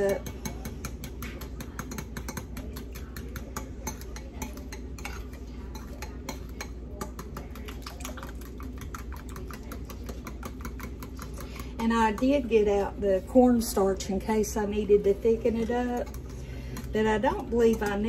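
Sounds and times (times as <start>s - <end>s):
utensil clicking against ceramic bowl: 0.1s - 12.3s.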